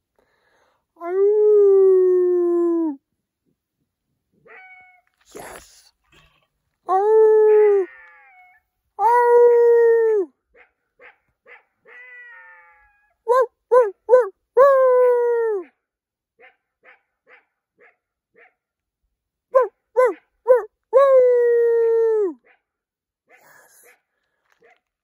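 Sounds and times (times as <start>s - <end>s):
man imitating coyote howl: 1.0s - 3.0s, 9.0s - 10.3s, 13.3s - 15.7s, 19.6s - 22.4s.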